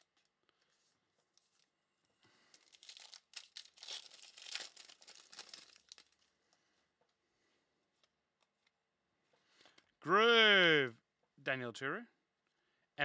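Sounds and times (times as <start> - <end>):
wrapper tearing and crinkling: 2.4 - 6.3.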